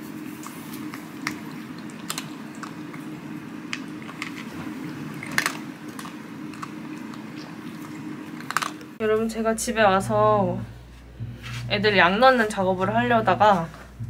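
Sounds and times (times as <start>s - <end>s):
steady low hum: 0.0s - 14.0s
cats chewing food from bowls: 0.2s - 9.0s.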